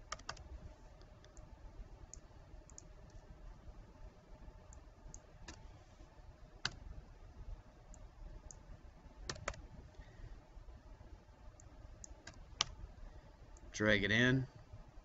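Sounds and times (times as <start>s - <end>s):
mouse and keyboard clicks: 4.7s - 5.7s, 9.3s - 9.6s.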